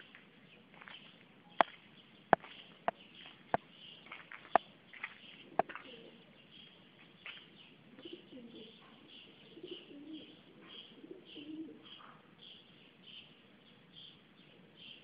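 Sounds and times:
pigeon cooing: 5.4 - 6.2, 7.9 - 12.3.

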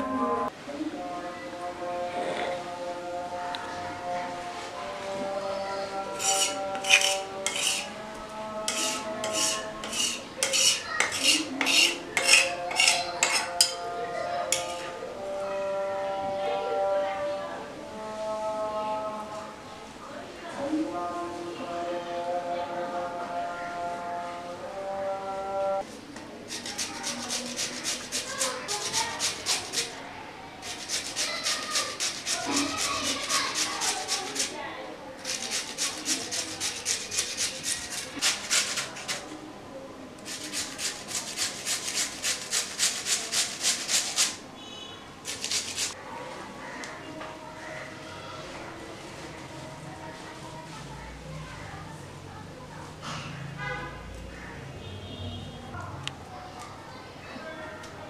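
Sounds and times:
metal spatula scraping paste: 5.4 - 8.0, 8.7 - 15.0, 26.5 - 30.0, 30.6 - 34.6, 35.2 - 39.4, 40.2 - 44.4, 45.3 - 46.0.

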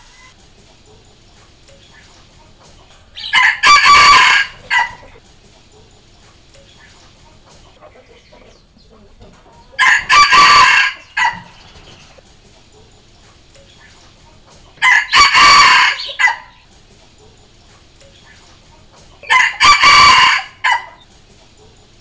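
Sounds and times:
rooster crowing: 3.1 - 5.2, 9.7 - 11.7, 14.8 - 16.6, 19.2 - 21.1.

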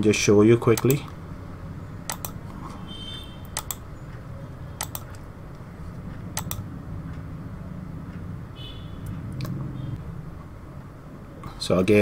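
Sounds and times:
steady low hum: 0.0 - 12.0
computer mouse clicks: 0.7 - 1.2, 2.1 - 2.5, 3.4 - 3.9, 4.8 - 6.7.

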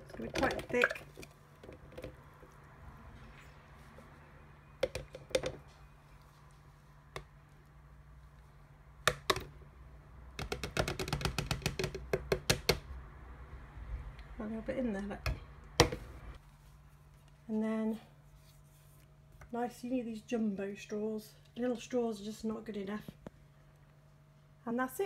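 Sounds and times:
plastic jug tapping on glass: 10.4 - 12.8.

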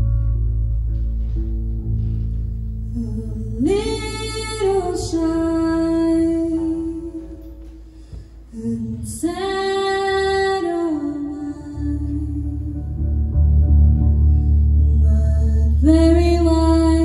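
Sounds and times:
soft band backing: 0.0 - 17.0
woman singing into a microphone: 2.9 - 13.0, 14.8 - 17.0.

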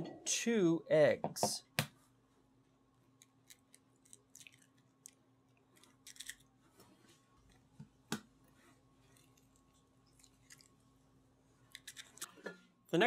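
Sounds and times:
eggshells cracking: 3.2 - 6.5, 10.1 - 10.8, 11.7 - 12.3.

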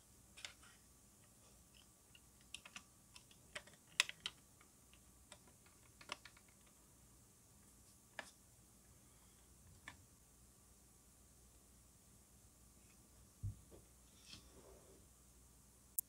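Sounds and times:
plastic parts clicking: 0.4 - 6.7.

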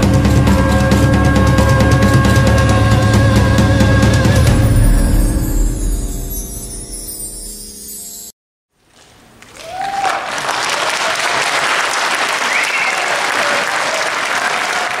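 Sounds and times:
audience applauding: 9.0 - 15.0.

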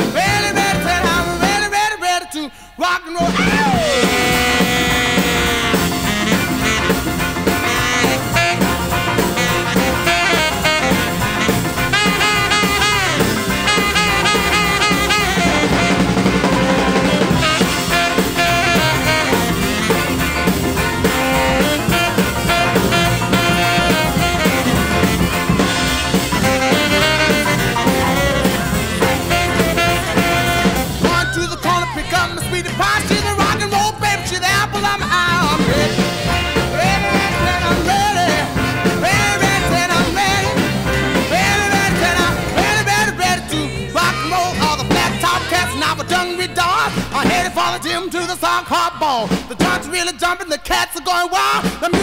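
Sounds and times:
instrumental music with steady beat: 3.6 - 33.9.

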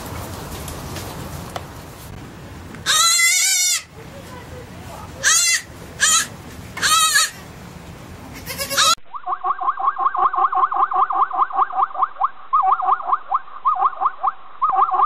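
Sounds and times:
young goat bleating: 2.9 - 3.9, 5.2 - 7.4, 8.4 - 9.0.

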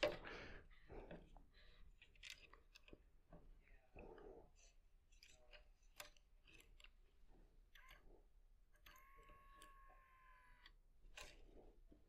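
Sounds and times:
faint clicks and handling noises: 0.0 - 12.0
faint steady squeal: 8.8 - 10.8.

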